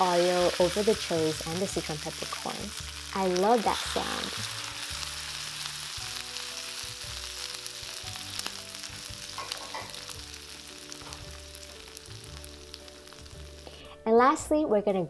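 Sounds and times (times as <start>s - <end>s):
hot oil sizzling on chilies: 0.0s - 14.0s.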